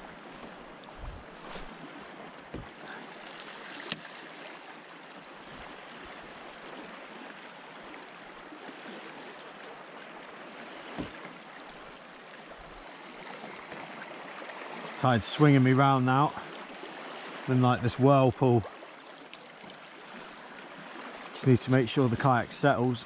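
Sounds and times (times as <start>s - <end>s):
water swirling and lapping: 0.0s - 23.0s.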